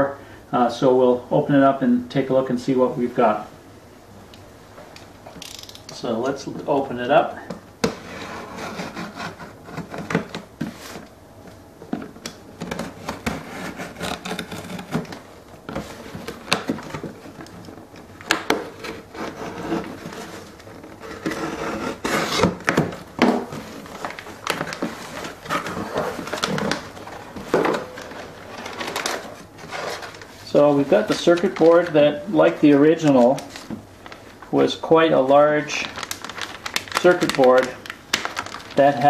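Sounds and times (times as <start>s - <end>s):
cardboard flaps rustling: 7.8s - 39.0s
packing tape peeling: 12.3s - 15.3s, 35.8s - 39.0s.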